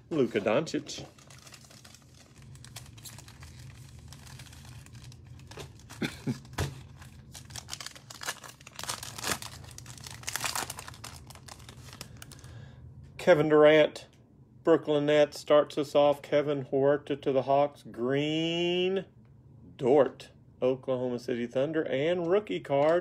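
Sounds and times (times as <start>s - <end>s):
foil wrapper tearing and crinkling: 1.0s - 12.4s.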